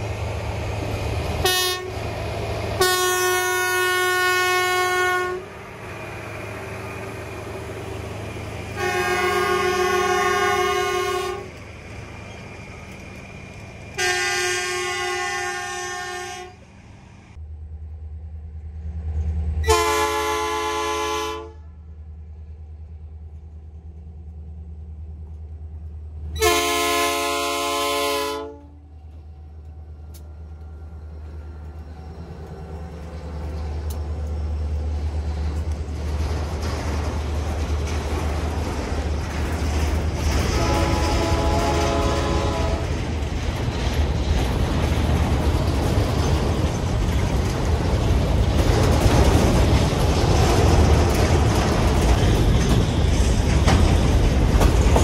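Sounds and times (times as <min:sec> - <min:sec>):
steel wheels on rails: 0:00.0 - 0:20.8, 0:22.2 - 0:55.0
diesel locomotive engine rumble: 0:00.0 - 0:55.0
train horn blasts: 0:01.4 - 0:02.0, 0:02.8 - 0:05.5, 0:08.8 - 0:11.6, 0:14.0 - 0:16.6, 0:19.6 - 0:21.9, 0:26.4 - 0:28.9, 0:40.4 - 0:43.0.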